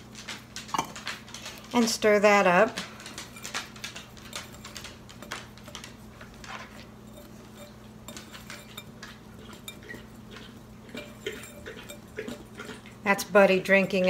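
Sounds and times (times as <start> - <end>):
whisk scraping in glass bowl: 3.3 - 14.0.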